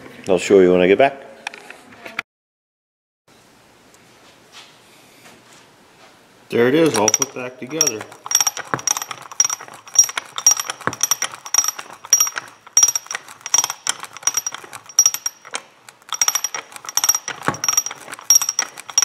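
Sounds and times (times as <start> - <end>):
ratchet clicking with metallic ring: 6.7 - 19.0.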